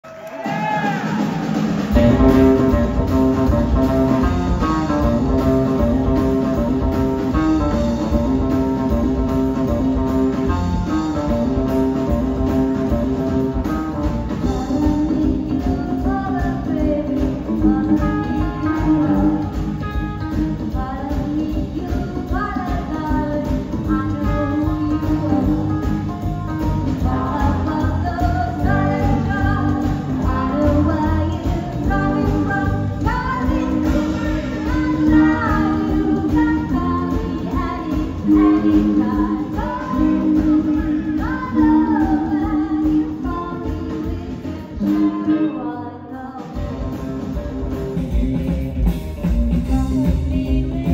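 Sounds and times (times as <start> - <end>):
drums: 0.0 - 50.9
electric guitar: 0.2 - 50.9
slapped upright bass: 2.0 - 45.1, 46.6 - 50.9
woman singing: 14.4 - 47.0, 49.6 - 50.9.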